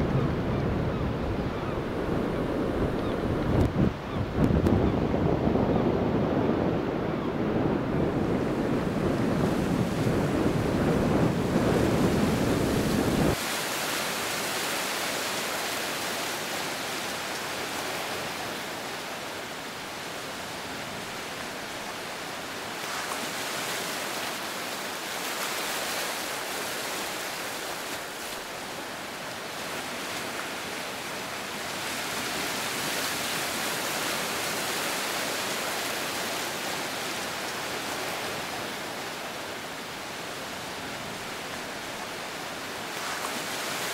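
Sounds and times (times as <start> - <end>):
wind rumbling on microphone: 0.0 - 19.2.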